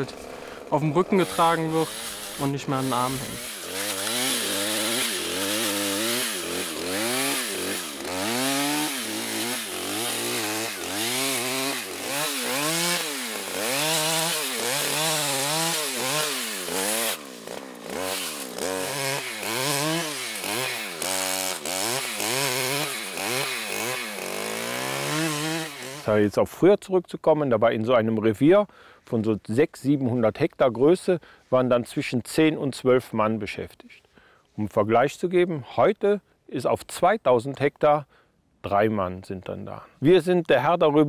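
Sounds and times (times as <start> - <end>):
brush cutter engine revving: 0.0 - 26.3.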